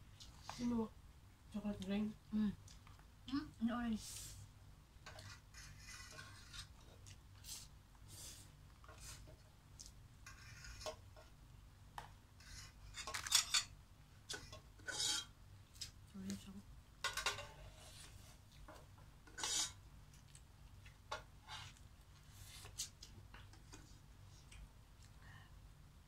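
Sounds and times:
spoons scraping plastic container: 5.1 - 6.8, 14.3 - 15.3, 19.3 - 19.8.

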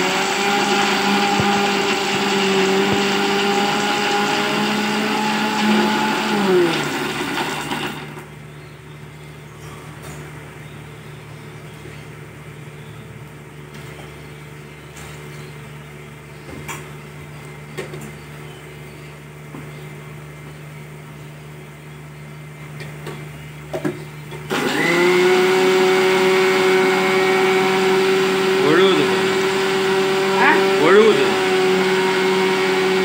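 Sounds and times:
mixer grinder motor running: 0.0 - 8.4, 24.5 - 33.0.

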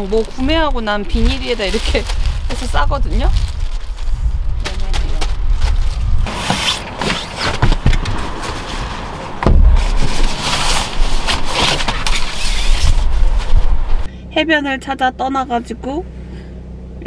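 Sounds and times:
plastic bag crinkling: 0.0 - 6.1
wind rumbling on microphone: 0.0 - 6.5, 7.2 - 14.1.

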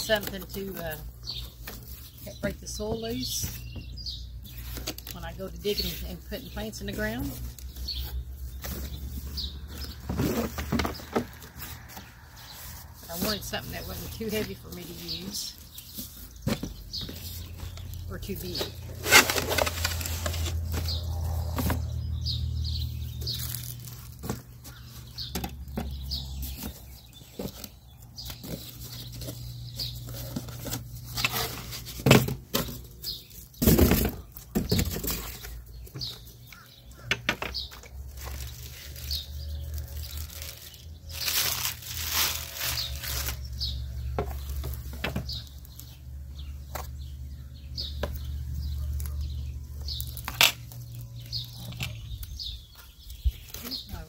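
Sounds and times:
cardboard boxes knocking and scraping: 5.8 - 17.8, 24.0 - 36.4.

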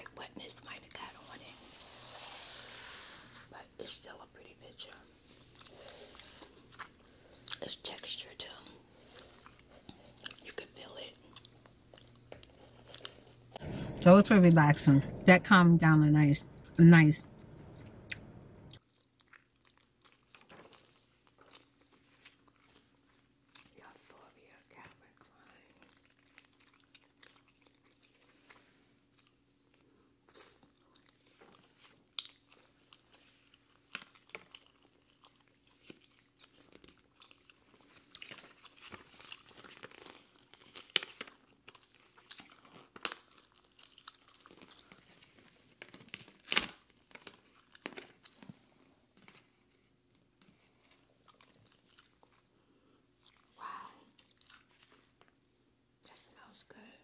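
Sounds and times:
faint steady hum: 0.0 - 57.0
chewing potato chips: 4.8 - 13.5, 18.1 - 24.1, 25.2 - 48.6, 50.0 - 52.5, 53.2 - 55.4.

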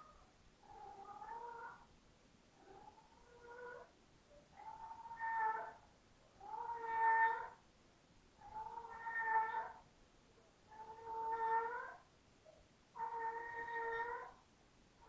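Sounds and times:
cat meowing: 0.7 - 1.8, 4.6 - 5.8, 6.4 - 7.6, 8.5 - 9.8, 10.7 - 12.0, 13.0 - 14.4.

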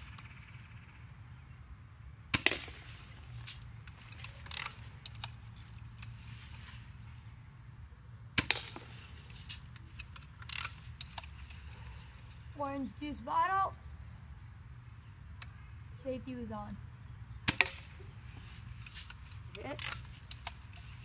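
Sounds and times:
bb gun shots: 2.3 - 3.0, 8.4 - 9.0, 17.5 - 18.0.

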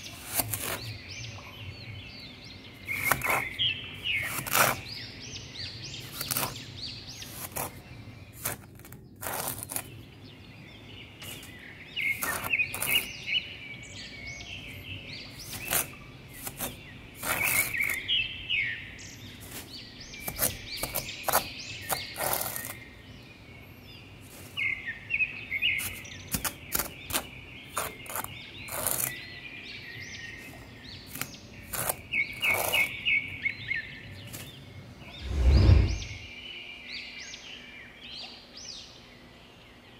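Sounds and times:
songbirds chirping: 0.0 - 39.9
spatula scraping damp sand: 11.2 - 13.2.

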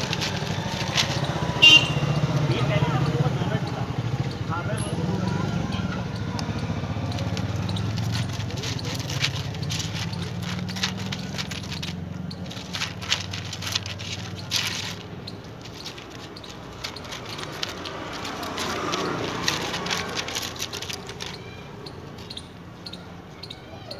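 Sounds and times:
pellets clicking on metal plate: 0.0 - 2.0, 6.3 - 22.2
puppy crunching dry kibble: 0.0 - 2.1, 6.3 - 22.5.

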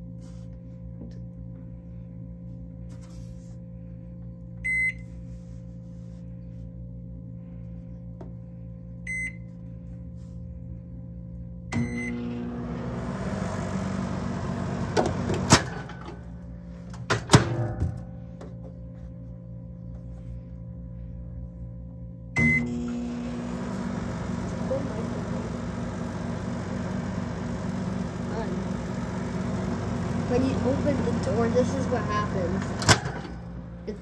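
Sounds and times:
microwave humming and whirring: 0.0 - 3.0, 3.6 - 34.0
microwave keypad beeps: 4.6 - 5.0, 9.1 - 9.4, 11.8 - 12.2, 22.4 - 22.7.

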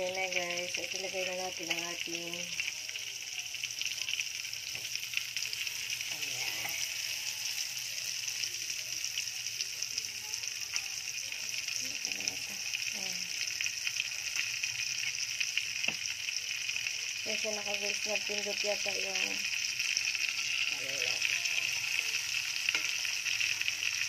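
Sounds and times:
chicken sizzling in hot oil: 0.0 - 24.0.

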